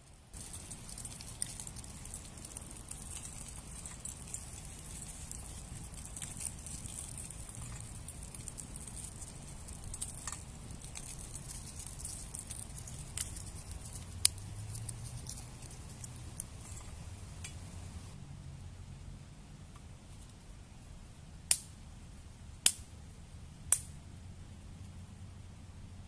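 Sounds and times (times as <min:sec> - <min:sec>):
wood fire hissing and crackling: 0:00.0 - 0:18.2.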